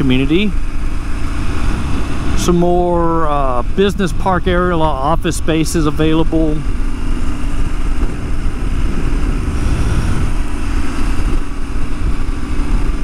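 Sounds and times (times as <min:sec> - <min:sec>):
motorcycle engine rumble: 0:00.0 - 0:13.0
wind on microphone: 0:01.2 - 0:02.8, 0:06.7 - 0:13.0.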